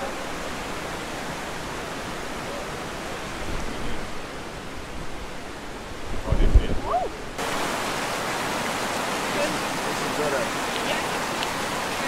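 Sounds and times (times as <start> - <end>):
water rushing over rocks: 0.0 - 12.0.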